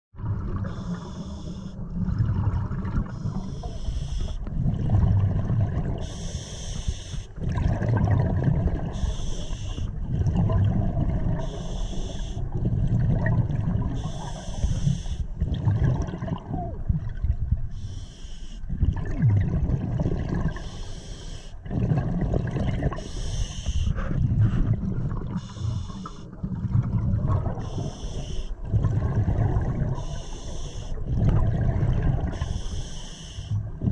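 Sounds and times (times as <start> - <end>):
bubbling exhaled air: 0.2 - 33.9
hissing regulator breath: 6.0 - 7.3, 14.0 - 15.2, 17.8 - 18.6, 20.6 - 21.6, 23.0 - 24.6, 32.3 - 33.6.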